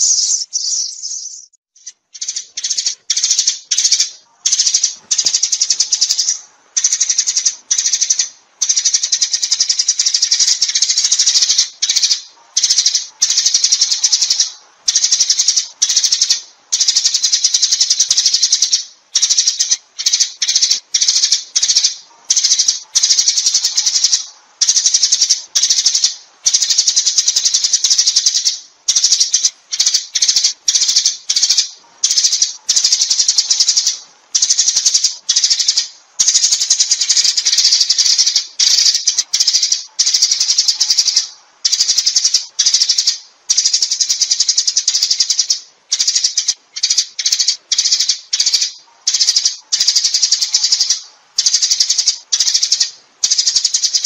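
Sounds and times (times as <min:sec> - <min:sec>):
sparrows chirping and chattering: 0:00.0 - 0:54.0.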